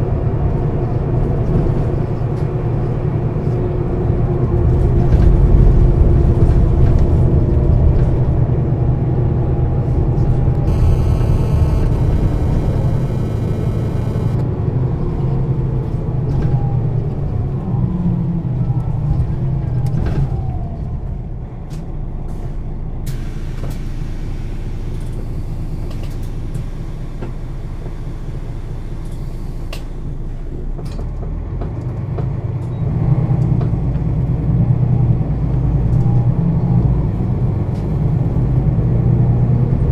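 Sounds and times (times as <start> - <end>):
bus diesel engine rumbling: 0.0 - 39.9
high electronic tone: 10.6 - 14.4
sharp clicks: 10.6 - 14.4.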